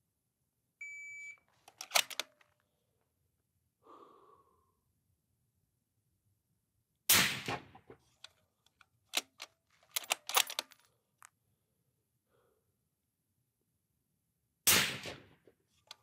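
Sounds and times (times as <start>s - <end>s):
rifle bolt metallic clicks: 1.7s - 2.5s, 8.2s - 10.9s
suppressed rifle shot: 7.1s - 8.0s, 14.7s - 15.5s.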